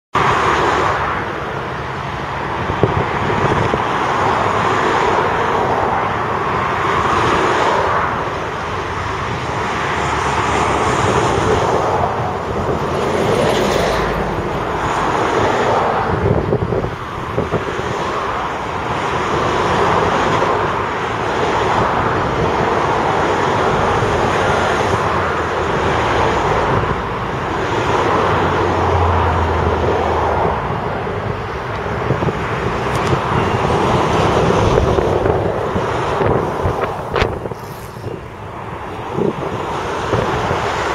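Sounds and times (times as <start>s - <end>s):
dump truck diesel engines: 0.2s - 40.9s
tracked excavator working: 6.4s - 40.9s.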